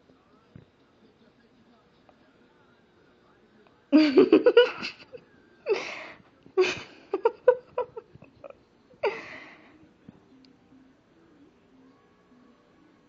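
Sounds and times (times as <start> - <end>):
stifled breathy laughter: 4.0 - 9.6.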